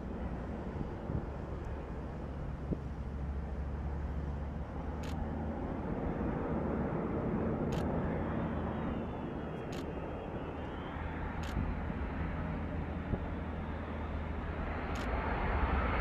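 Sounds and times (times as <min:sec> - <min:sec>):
distant jet engines rumbling: 0:00.0 - 0:16.0
faint high whine: 0:07.7 - 0:15.5.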